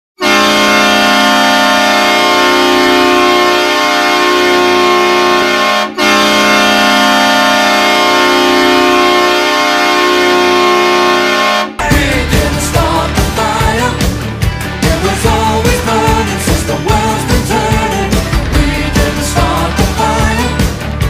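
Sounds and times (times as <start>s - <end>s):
hockey goal horn blasts: 0.2s - 11.8s.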